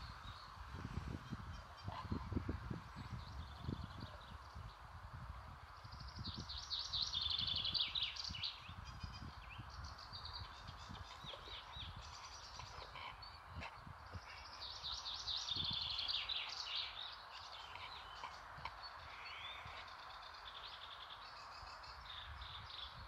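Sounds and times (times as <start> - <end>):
outdoor background noise: 0.0 - 23.0
songbird trilling song: 5.7 - 23.0.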